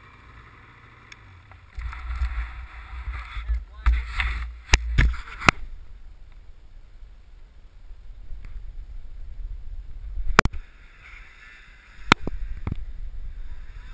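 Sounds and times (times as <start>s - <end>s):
wind rumble on microphone: 1.8s - 11.2s, 12.0s - 13.9s.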